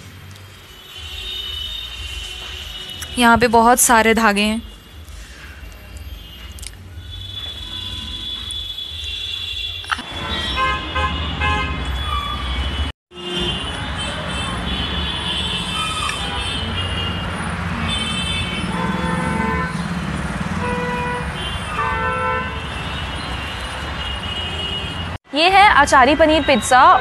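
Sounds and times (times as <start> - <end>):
traffic engine rumble: 0.0 - 27.0
car horn honks: 4.6 - 19.8, 20.6 - 25.2.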